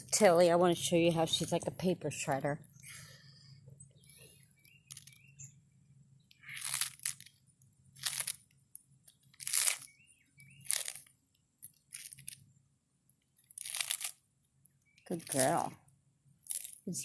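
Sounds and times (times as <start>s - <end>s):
tortoise crunching lettuce: 4.0s - 5.2s, 6.3s - 12.6s, 13.2s - 14.3s, 15.0s - 17.0s.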